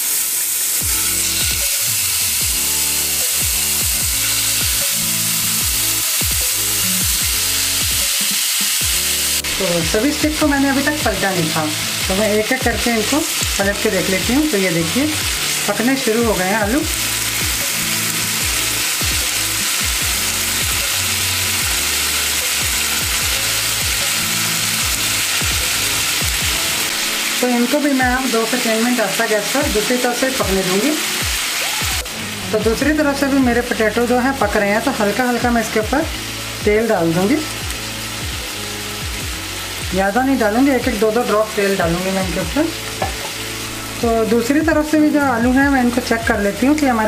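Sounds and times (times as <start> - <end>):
oil sizzling in a pan: 0.0 - 47.0
background music: 0.6 - 47.0
background music with bass beat: 0.8 - 11.2, 16.6 - 26.9, 37.6 - 40.0.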